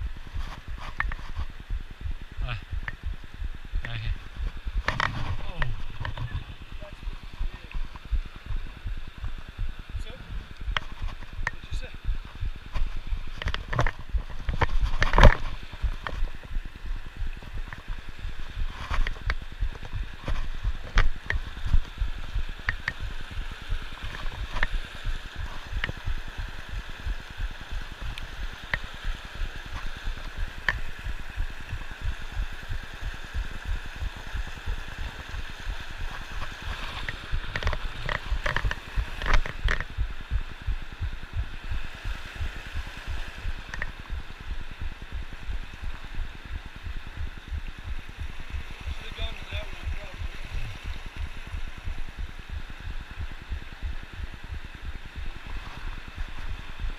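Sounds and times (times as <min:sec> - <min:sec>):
creek gurgling over rocks: 0:00.0 - 0:56.9
low microphone rumble: 0:00.0 - 0:56.9
sharp clicks: 0:02.8 - 0:03.0.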